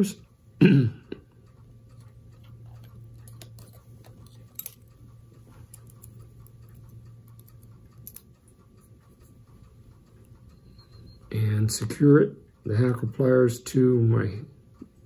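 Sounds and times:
steady low hum: 0.0 - 15.0
small clicks and taps of pliers: 2.0 - 5.0, 5.7 - 8.5.

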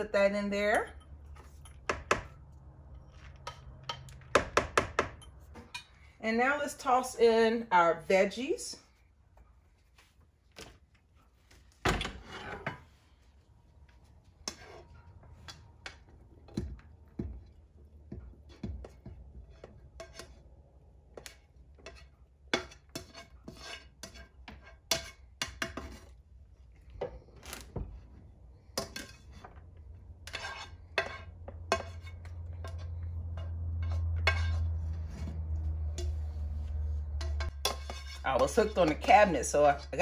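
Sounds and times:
spoon scraping a frying pan: 12.1 - 13.0, 14.4 - 16.6, 18.1 - 26.2, 27.9 - 40.0.

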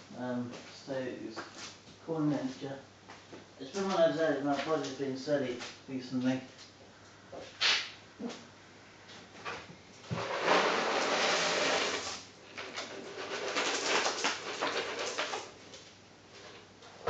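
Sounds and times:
objects rustling and clattering: 9.1 - 17.0.

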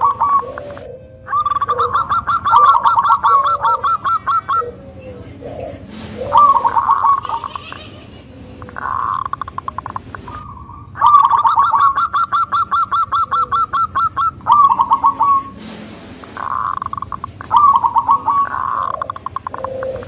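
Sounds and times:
dove cooing: 0.0 - 20.0
buzzy bird rattle: 5.4 - 10.4, 11.3 - 20.0.

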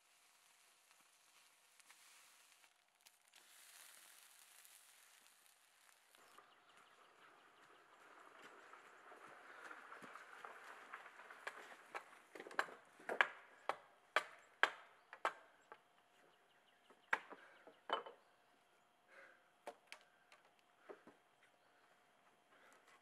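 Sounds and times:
rustle of handling: 0.0 - 12.3.

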